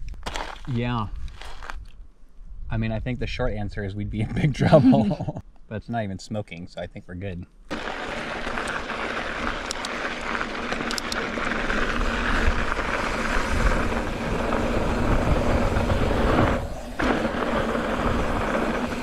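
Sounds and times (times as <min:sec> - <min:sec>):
bike tyres rolling over gravel: 0:00.2 - 0:01.8, 0:07.7 - 0:19.0
wind buffeting microphone: 0:11.5 - 0:19.0.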